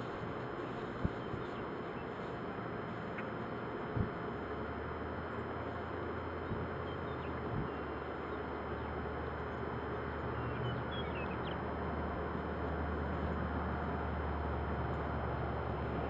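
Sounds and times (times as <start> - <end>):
low hum: 0.0 - 16.0
outdoor background hiss: 0.0 - 16.0
faint high bird chirps: 6.4 - 9.0, 10.3 - 11.6.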